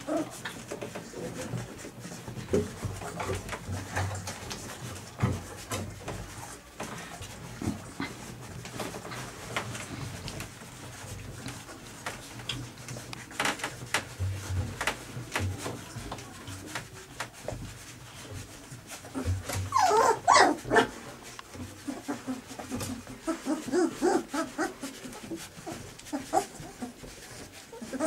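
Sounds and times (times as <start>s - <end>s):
puppies squealing and whimpering: 19.1s - 21.0s, 21.7s - 27.1s, 27.7s - 28.0s.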